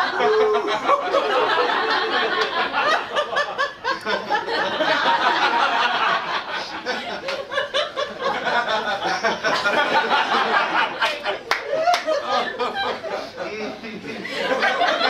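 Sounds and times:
man laughing into a microphone: 0.0 - 15.0.

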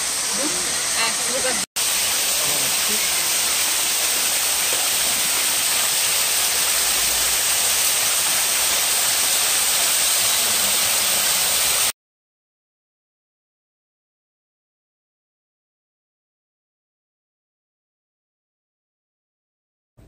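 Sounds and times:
waterfall splashing over rocks: 0.0 - 11.9.

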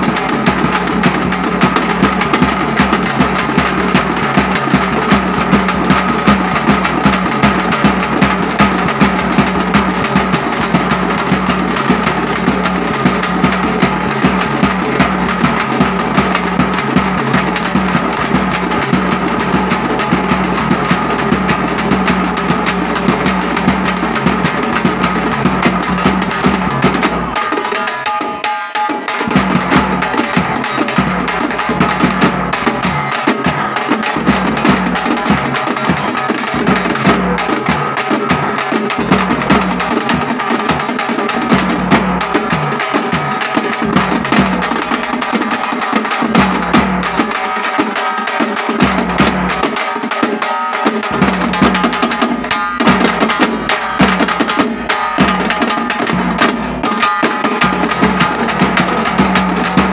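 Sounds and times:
frame drums beaten with sticks: 0.0 - 59.9
steel barrel drum: 0.0 - 59.9.

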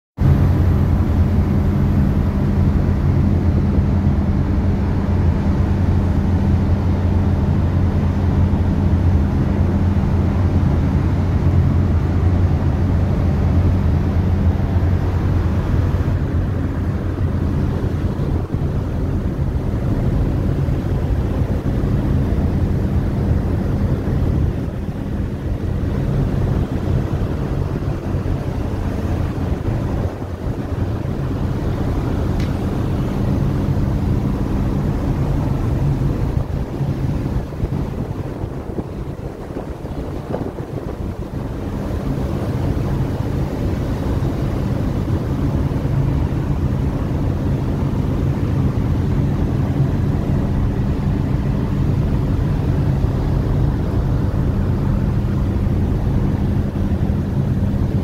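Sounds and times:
ferry engines humming: 0.2 - 58.0
wind rushing over microphone: 0.2 - 58.0.

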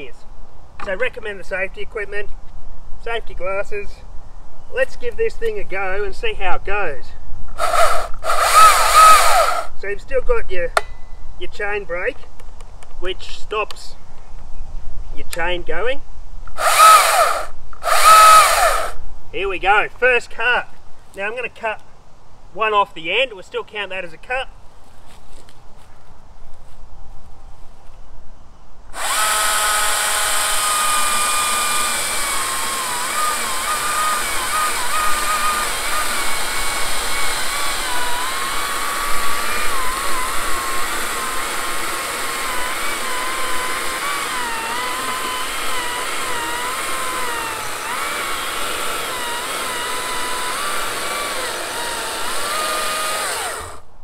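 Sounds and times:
battery chainsaw cutting log: 7.6 - 9.7, 16.6 - 19.0, 29.0 - 53.9.

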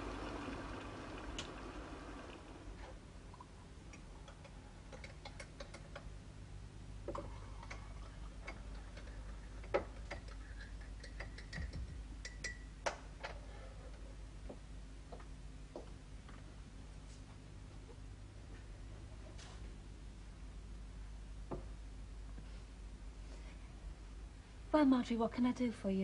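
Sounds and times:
mugs and spoons clinking: 7.2 - 12.7.

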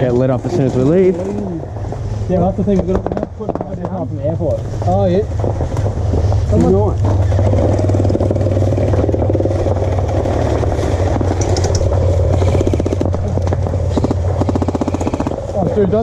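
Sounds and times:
steady low rumble: 0.0 - 16.0
gel blaster firing full auto: 12.3 - 13.3, 13.9 - 15.4.

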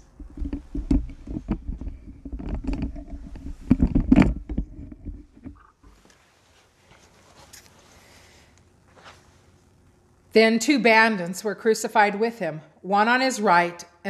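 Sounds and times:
microphone handling knocks and rustles: 0.0 - 6.2.

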